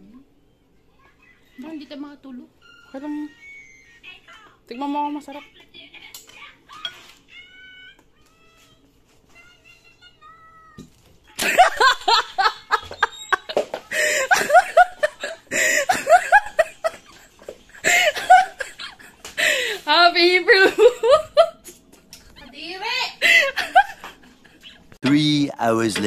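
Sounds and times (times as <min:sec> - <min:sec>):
high-pitched squealing laughter: 0:11.7 - 0:13.6.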